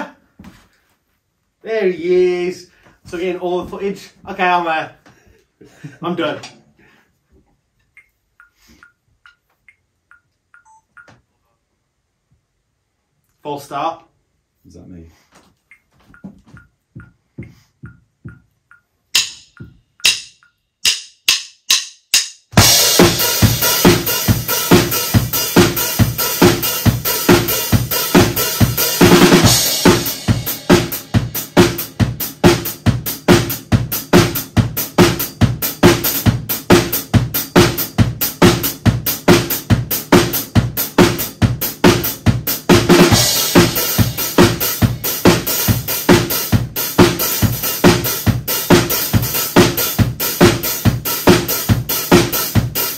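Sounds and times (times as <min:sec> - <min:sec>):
drum kit playing a beat: 0:15.7 - 0:52.9
sharp drum count-in strikes: 0:15.8 - 0:52.9.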